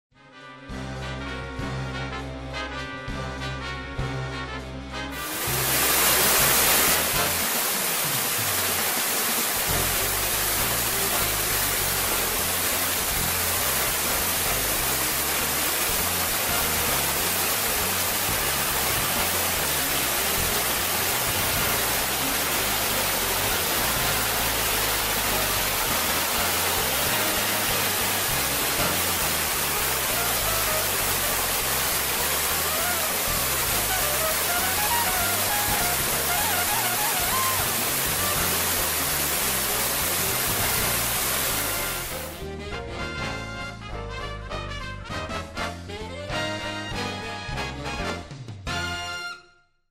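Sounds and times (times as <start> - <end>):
water rushing over a waterfall: 5.2 - 42.4.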